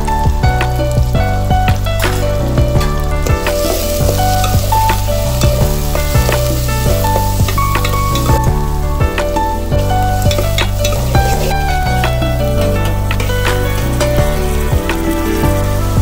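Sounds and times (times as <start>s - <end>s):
background music with bass: 0.0s - 16.0s
onions sizzling in hot oil: 0.1s - 16.0s
spatula scraping a pan: 3.2s - 8.5s, 9.3s - 15.9s.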